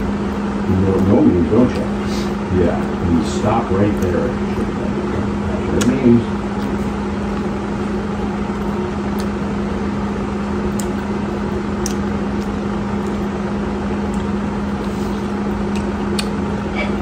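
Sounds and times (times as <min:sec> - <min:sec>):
steady low hum: 0:00.0 - 0:17.0
corn on the cob being chewed: 0:02.8 - 0:04.6, 0:08.4 - 0:09.5, 0:10.6 - 0:16.4.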